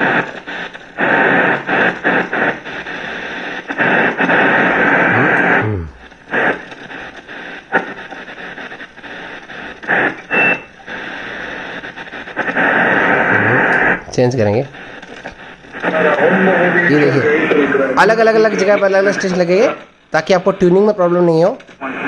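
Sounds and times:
radio static hiss: 0:00.0 - 0:22.0.

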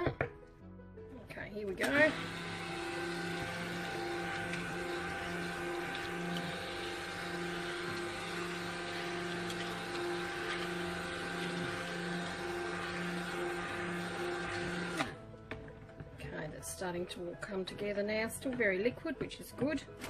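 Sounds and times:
stick blender motor humming: 0:01.7 - 0:15.7.

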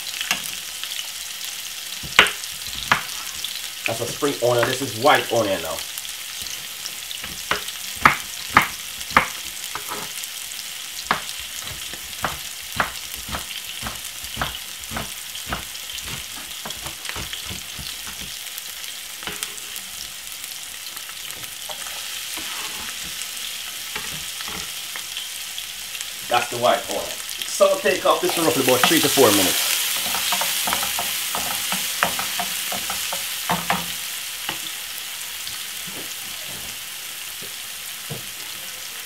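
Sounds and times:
vegetables sizzling in oil: 0:00.0 - 0:39.0
knife chopping on wooden board: 0:07.2 - 0:10.1, 0:11.1 - 0:18.4.

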